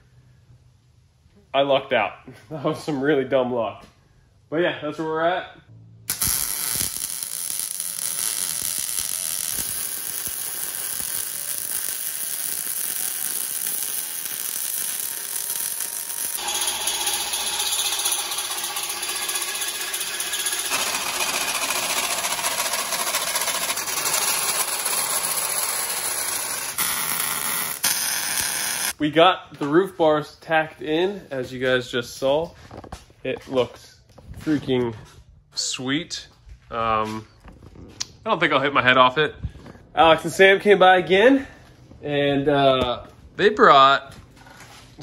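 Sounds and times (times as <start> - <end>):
power tools working steel: 6.1 - 29.0.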